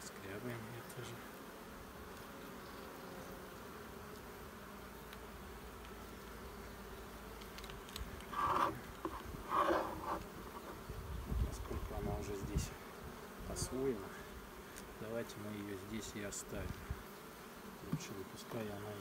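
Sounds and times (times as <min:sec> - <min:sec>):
bees humming: 0:00.0 - 0:19.0
hive tool scraping comb: 0:07.3 - 0:10.9.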